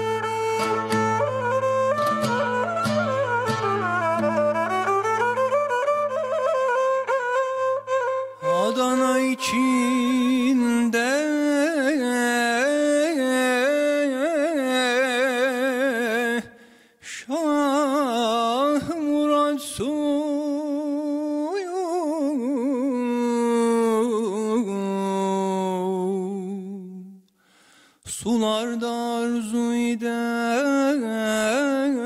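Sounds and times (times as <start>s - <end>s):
man singing unaccompanied: 8.4s - 16.5s, 17.2s - 27.2s, 28.1s - 32.0s.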